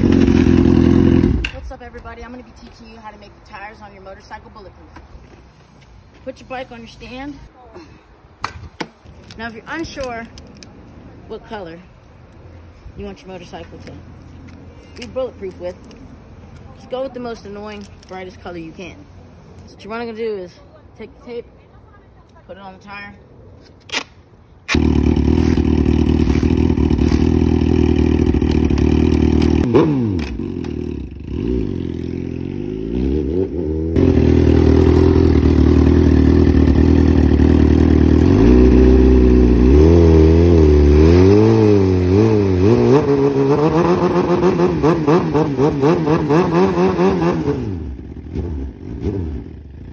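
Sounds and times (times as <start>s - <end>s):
motorcycle engine revving: 0.0s - 1.6s, 24.7s - 49.9s.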